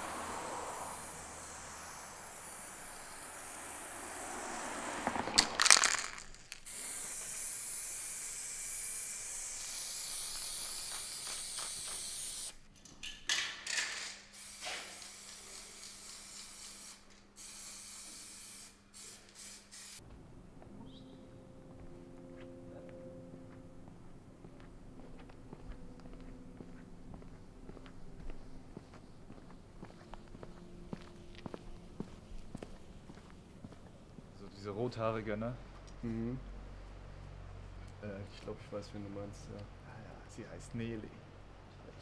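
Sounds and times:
spray paint can hissing: 0:00.0 - 0:12.6, 0:14.3 - 0:20.0.

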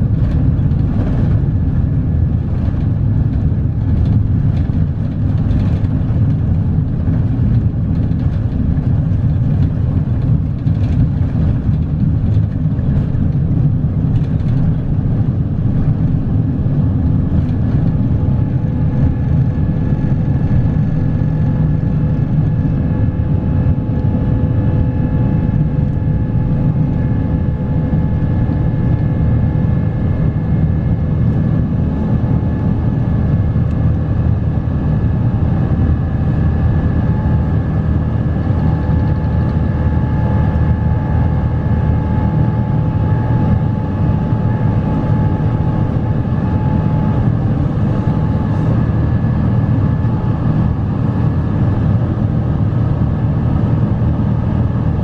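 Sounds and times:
jet engines at takeoff power: 0:00.0 - 0:55.0.

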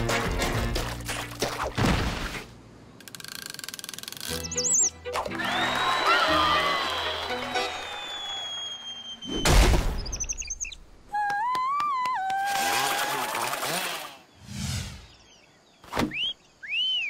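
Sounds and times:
whistling tone rising and falling: 0:04.4 - 0:10.8, 0:16.1 - 0:17.0.

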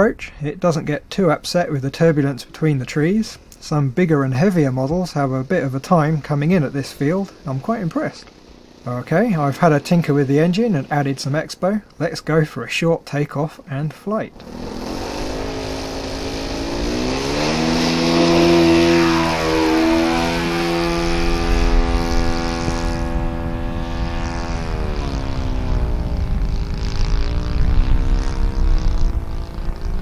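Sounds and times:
model plane engine at full throttle: 0:04.8 - 0:11.4, 0:14.3 - 0:30.0.

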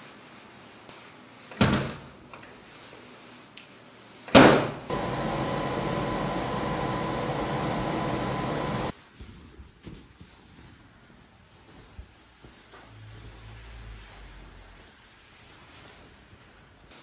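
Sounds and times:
tumble dryer humming: 0:04.9 - 0:08.9.

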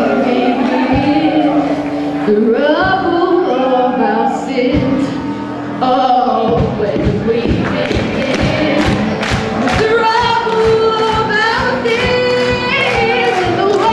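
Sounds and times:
bass guitar: 0:00.0 - 0:13.9
woman singing: 0:00.0 - 0:13.9
drums: 0:06.4 - 0:13.9.

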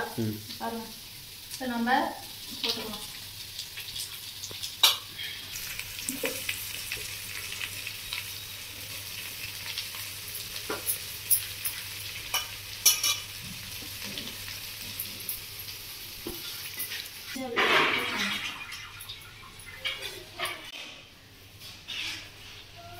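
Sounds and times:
leaves and onions sizzling: 0:00.0 - 0:22.9
ladle clinking and scraping pan: 0:10.7 - 0:13.3, 0:16.4 - 0:21.0.

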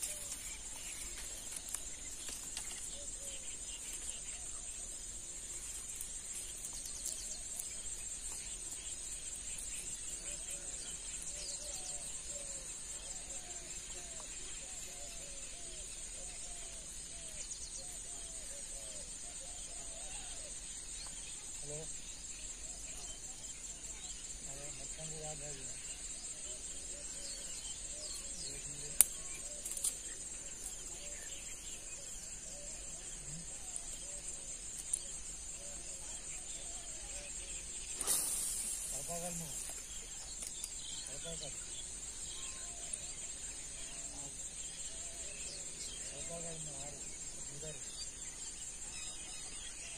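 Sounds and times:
insects droning: 0:00.0 - 0:49.9
short bird chirps: 0:37.8 - 0:40.9.

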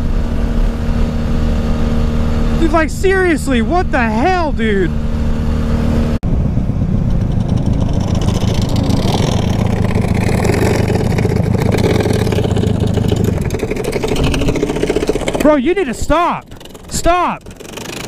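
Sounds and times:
motorcycle engine running: 0:00.0 - 0:18.0
wind noise on microphone: 0:05.9 - 0:17.8.

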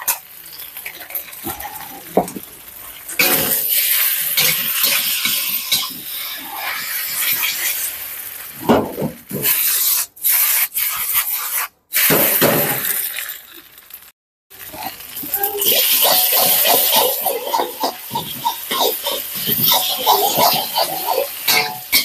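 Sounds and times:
noodles sizzling in a wok: 0:00.0 - 0:22.0
metal spatula scraping a wok: 0:03.1 - 0:08.0, 0:15.8 - 0:22.0.

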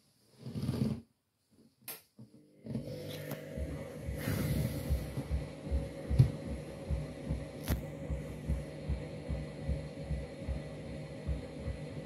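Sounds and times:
washing machine motor hum: 0:02.4 - 0:12.0.

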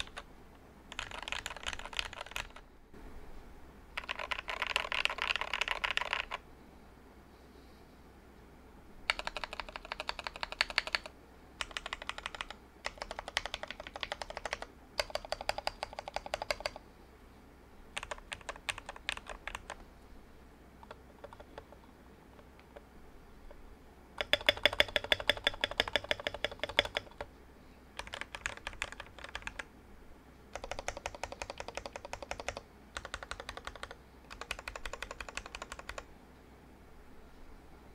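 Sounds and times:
mechanical keyboard typing: 0:00.0 - 0:00.3, 0:00.9 - 0:02.6, 0:04.0 - 0:06.4, 0:09.1 - 0:16.8, 0:18.0 - 0:19.8, 0:20.8 - 0:22.8, 0:24.2 - 0:27.3, 0:28.0 - 0:29.7, 0:30.5 - 0:36.1.

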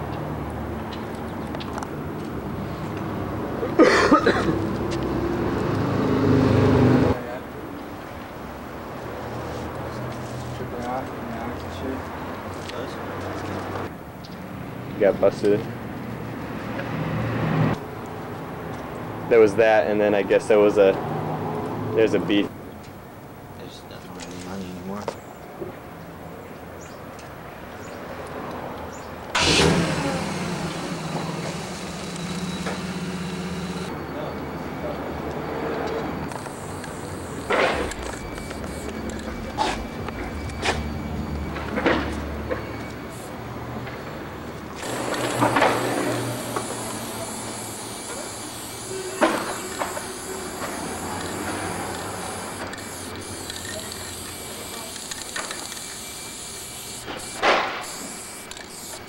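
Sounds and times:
vehicle engine running: 0:29.4 - 0:33.9, 0:44.4 - 0:59.0
spray paint can hissing: 0:44.8 - 0:59.0
sharp click: 0:56.9 - 0:59.0.

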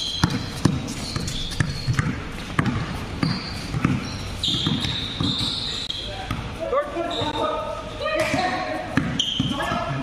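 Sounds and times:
basketball bouncing on hard court: 0:00.0 - 0:05.6, 0:08.2 - 0:10.0
shoe squeaks: 0:00.0 - 0:09.9.

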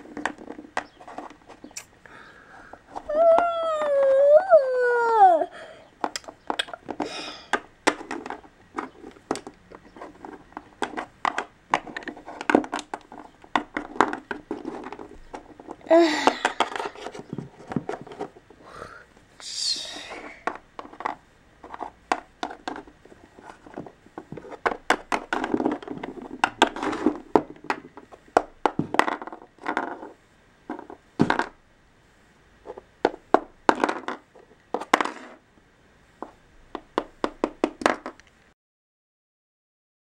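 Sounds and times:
plastic figures rubbing and scraping: 0:00.0 - 0:01.9, 0:02.5 - 0:04.2, 0:06.0 - 0:18.6, 0:19.7 - 0:31.6, 0:32.6 - 0:35.5, 0:36.1 - 0:38.3
plastic figures tapping and clicking: 0:06.0 - 0:18.3, 0:20.4 - 0:30.1, 0:32.7 - 0:35.4, 0:36.2 - 0:38.4.

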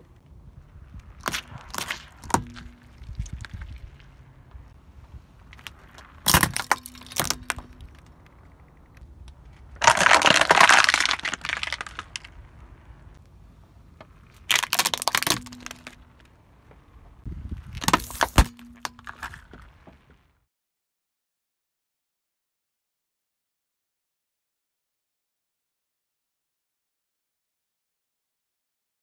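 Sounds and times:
plastic cracking under car tyre: 0:00.0 - 0:04.7, 0:05.4 - 0:13.3, 0:13.9 - 0:20.3.

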